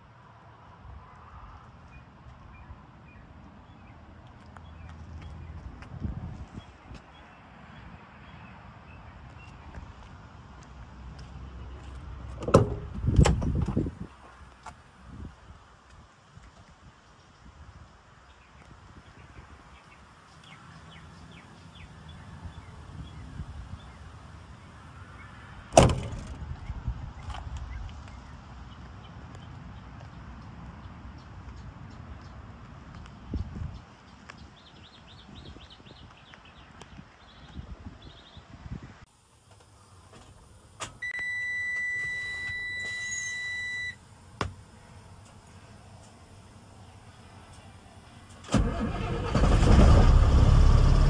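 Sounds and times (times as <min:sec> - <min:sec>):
metal truck door slamming: 0:12.3 - 0:13.9, 0:25.7 - 0:26.4
faint high chirps: 0:41.0 - 0:44.0
high-pitched warning beep: 0:41.0 - 0:44.0.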